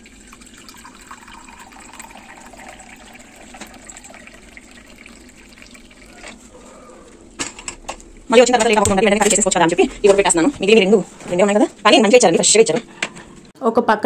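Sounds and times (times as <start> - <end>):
water pouring into steel pot: 0.0 - 6.5.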